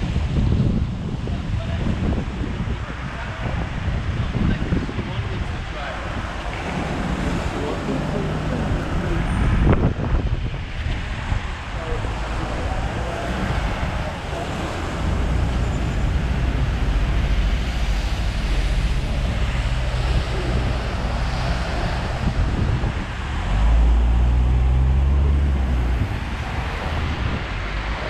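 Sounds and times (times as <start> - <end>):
engine rumble: 3.1 - 28.0
heavy vehicle passing: 5.8 - 10.2, 11.2 - 28.0.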